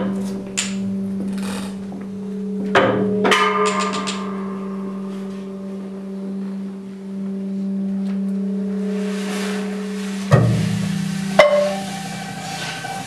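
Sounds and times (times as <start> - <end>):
ringing strikes: 0.0 - 13.0
steady low drone: 0.0 - 13.0
struck and scraped sounds: 8.8 - 13.0.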